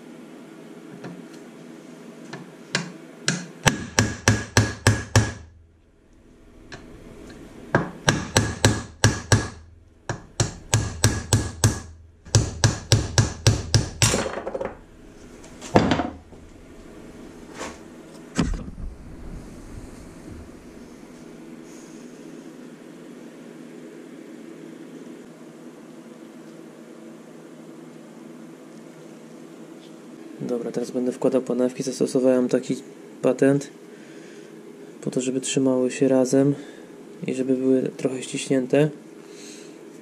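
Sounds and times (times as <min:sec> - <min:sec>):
hammer tapping on metal: 0:02.3 - 0:05.5, 0:07.8 - 0:14.7.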